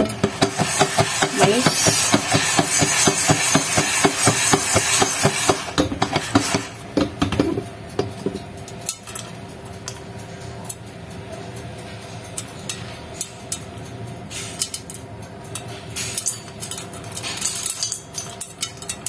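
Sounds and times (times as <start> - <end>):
popcorn kernels rattling in pot: 0.0 - 9.3
popcorn popping: 0.0 - 11.3, 12.2 - 19.0.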